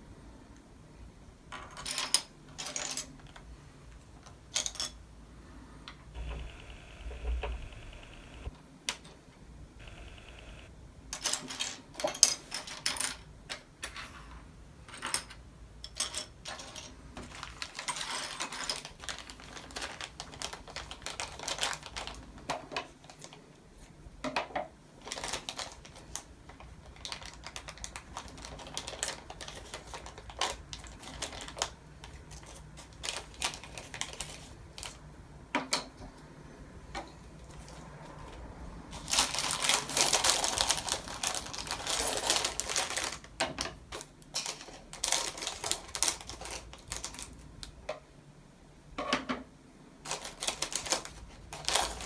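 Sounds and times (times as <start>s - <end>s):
plastic pieces clicking and clattering: 1.6s - 3.4s, 4.2s - 5.0s, 11.1s - 13.7s, 14.9s - 23.4s, 39.0s - 47.4s, 50.0s - 52.0s.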